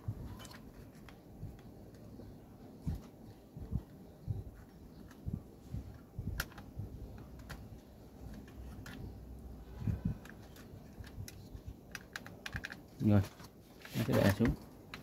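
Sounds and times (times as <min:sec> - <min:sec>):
sharp plastic clicks: 0:05.9 - 0:13.5, 0:14.2 - 0:15.0.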